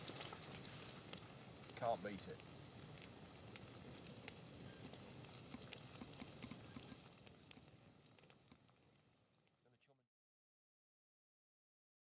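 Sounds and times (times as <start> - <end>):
meat sizzling in a pan: 0.0 - 9.6
campfire crackling and popping: 0.0 - 9.9.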